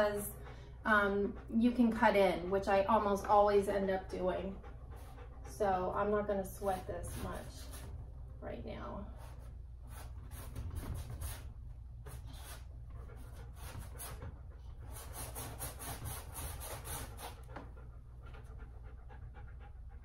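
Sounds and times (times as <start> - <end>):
dog panting: 0.0 - 8.0, 12.1 - 20.0.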